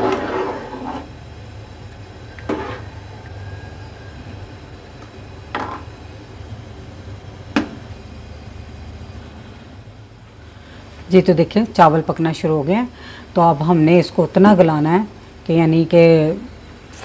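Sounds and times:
metal spoon stirring in pot: 0:02.5 - 0:03.0.

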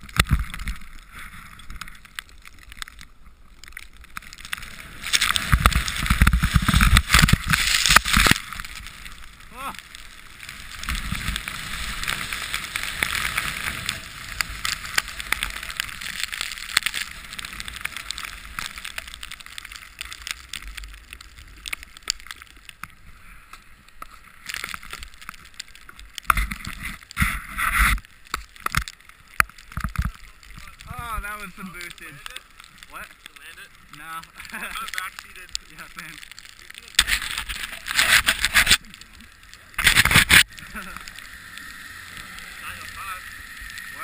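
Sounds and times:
snowboard sliding through powder snow: 0:04.6 - 0:19.2.

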